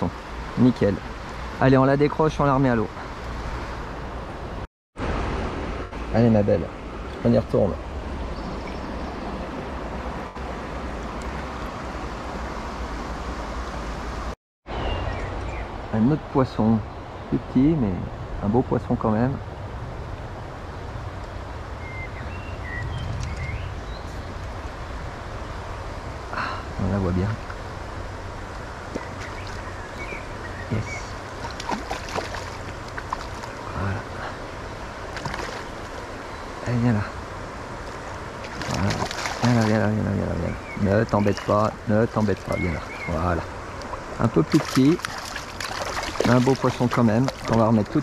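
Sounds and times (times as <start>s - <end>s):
flowing river water: 0.0s - 19.0s, 19.8s - 48.0s
wind rumble on microphone: 16.8s - 34.2s
river water running over stones: 26.8s - 48.0s.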